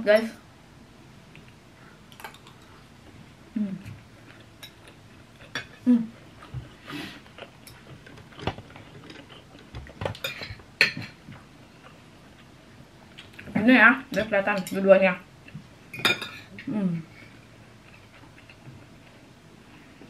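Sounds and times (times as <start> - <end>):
forks clinking on ceramic plates: 15.9 - 16.5.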